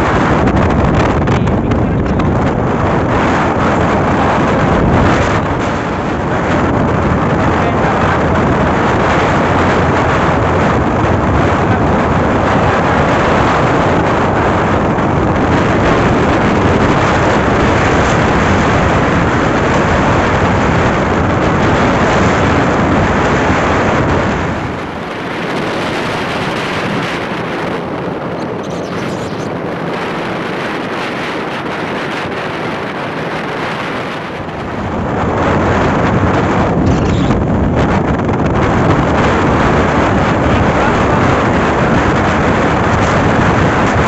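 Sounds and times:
road noise: 0:00.0 - 0:44.0
wind rushing on microphone: 0:00.0 - 0:44.0.

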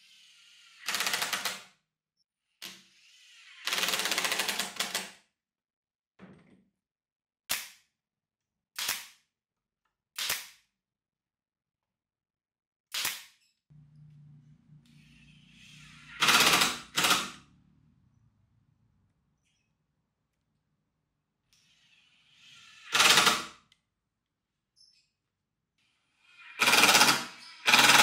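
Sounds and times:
pneumatic nailer shots: 0:22.7 - 0:23.6, 0:26.6 - 0:28.0.

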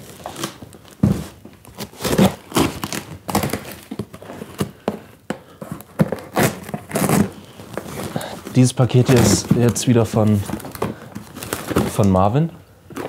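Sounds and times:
packing tape ripping: 0:00.0 - 0:04.8, 0:05.7 - 0:12.3
cardboard flaps crackling: 0:00.0 - 0:13.0.

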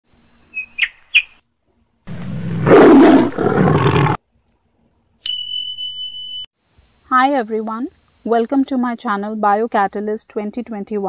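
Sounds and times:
animal roar: 0:02.1 - 0:04.2.

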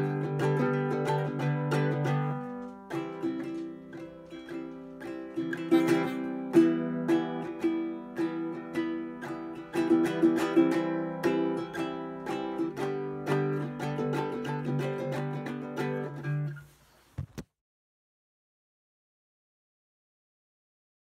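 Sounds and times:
ukulele strummed: 0:00.0 - 0:17.4.

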